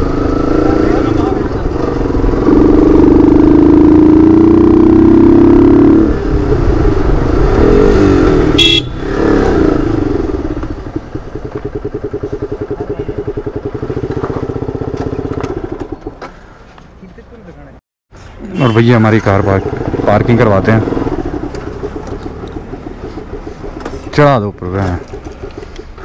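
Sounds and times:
motorcycle engine running: 0.0s - 16.2s, 18.6s - 26.0s
short horn beep: 8.6s - 9.0s, 18.4s - 19.1s.

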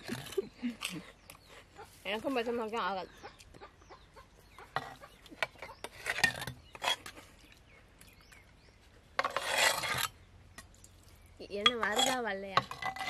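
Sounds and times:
steel tumblers clinking on clay pot: 4.7s - 7.3s, 9.2s - 10.8s, 11.5s - 13.0s.

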